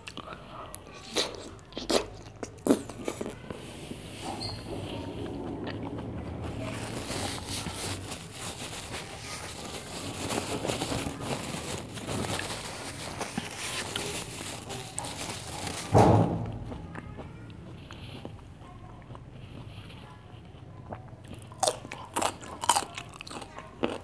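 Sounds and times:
paper tissue crinkling: 0:06.4 - 0:16.0
loud dull bump: 0:15.9 - 0:16.8.

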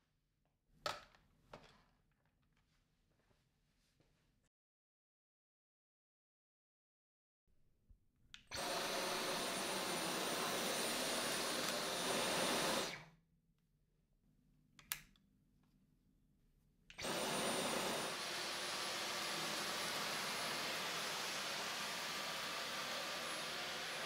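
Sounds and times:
stick vacuum running: 0:08.5 - 0:13.0, 0:17.0 - 0:24.0.

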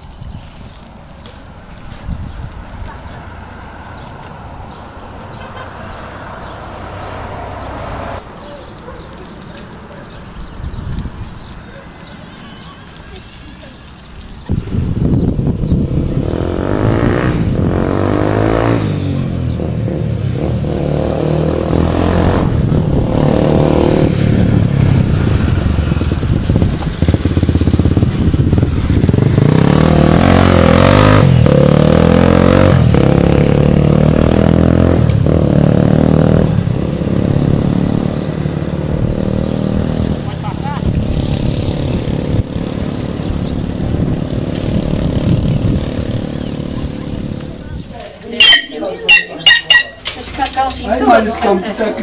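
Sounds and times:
small engine revving: 0:15.7 - 0:47.6.

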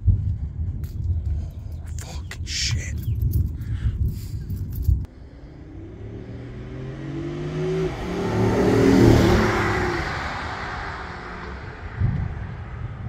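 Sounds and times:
car driving past: 0:05.2 - 0:13.0.

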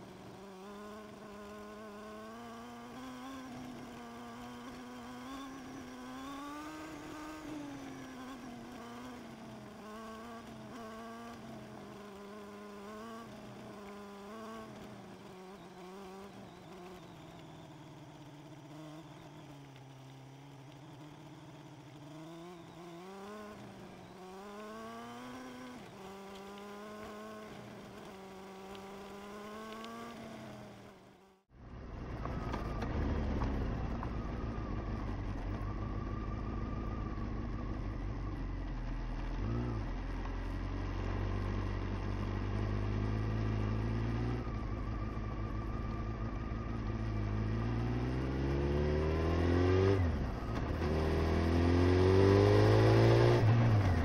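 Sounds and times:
motorcycle engine revving: 0:00.0 - 0:54.0
deep rumble: 0:31.6 - 0:40.3.

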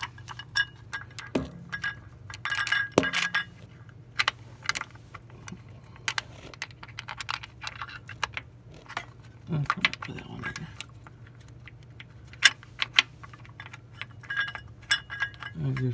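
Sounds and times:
small metal parts clinking: 0:00.0 - 0:04.9, 0:12.0 - 0:15.9.

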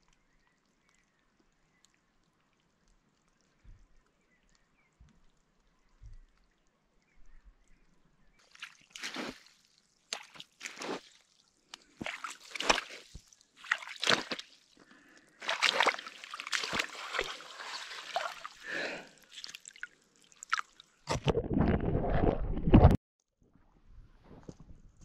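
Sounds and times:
feet sloshing through shallow water: 0:08.4 - 0:21.0.

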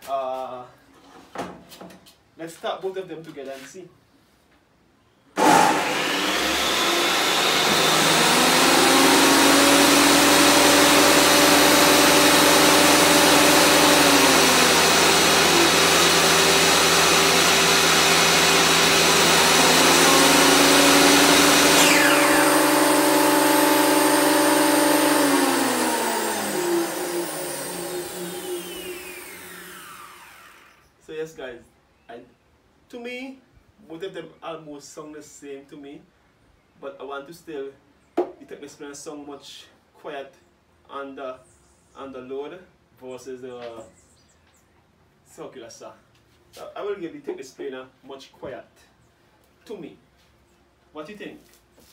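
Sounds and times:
thickness planer running: 0:05.4 - 0:30.8
circular saw whining: 0:05.4 - 0:30.9.

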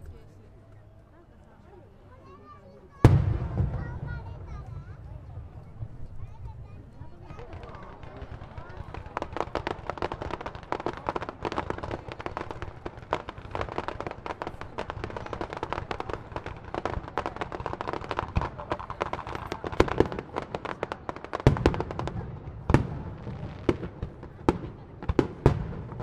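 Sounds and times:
fireworks crackling and popping: 0:02.4 - 0:26.0.

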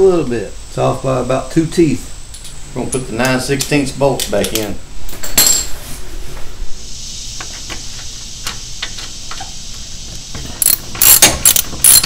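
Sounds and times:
steady hiss: 0:00.0 - 0:12.0
metal clicks: 0:02.4 - 0:04.8
socket ratchet clicking: 0:10.6 - 0:12.0.

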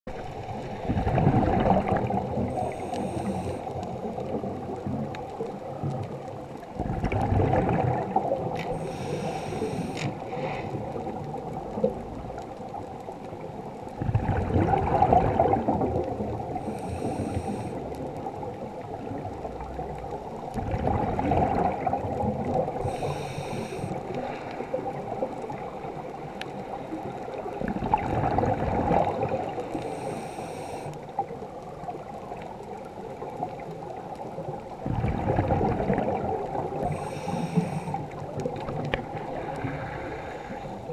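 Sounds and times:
bubbles gurgling underwater: 0:00.1 - 0:30.1, 0:31.1 - 0:40.9
regulator hiss: 0:02.5 - 0:03.7, 0:08.7 - 0:10.1, 0:16.6 - 0:17.8, 0:22.8 - 0:24.0, 0:29.8 - 0:31.0, 0:36.8 - 0:38.1.

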